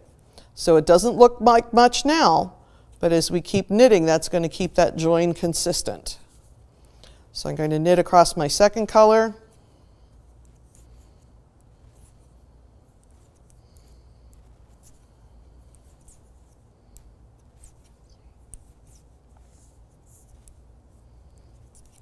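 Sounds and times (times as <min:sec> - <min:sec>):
low room hum: 0:00.0 - 0:22.0
yarn rubbing: 0:10.1 - 0:22.0.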